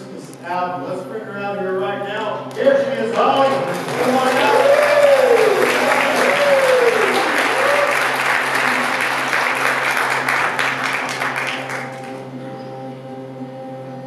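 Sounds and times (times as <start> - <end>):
audience applauding: 3.0 - 12.3
whoops from audience: 4.0 - 8.3.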